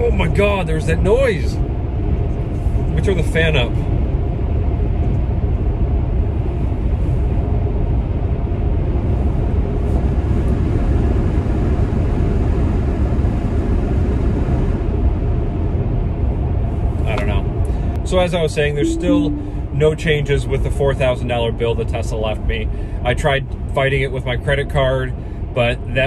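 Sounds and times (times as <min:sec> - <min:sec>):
road and tyre rumble: 0:00.0 - 0:18.1.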